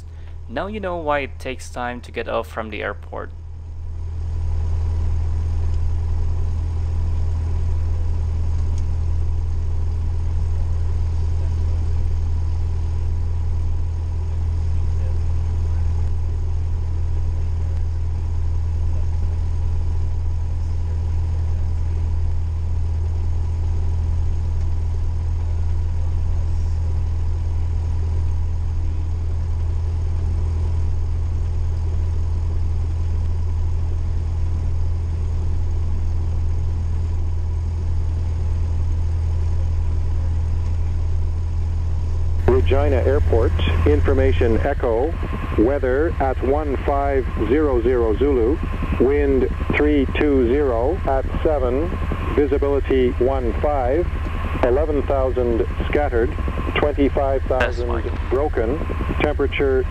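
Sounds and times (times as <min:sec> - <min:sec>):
aircraft piston engine droning: 0:00.0 - 0:59.9.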